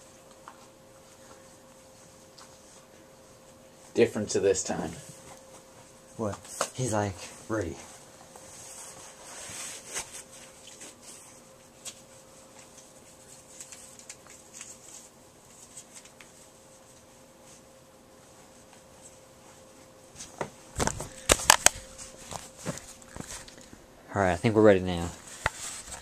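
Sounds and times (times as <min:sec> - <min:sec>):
faint steady hum: 0:00.0 - 0:26.0
small clicks and rustles: 0:11.8 - 0:17.1.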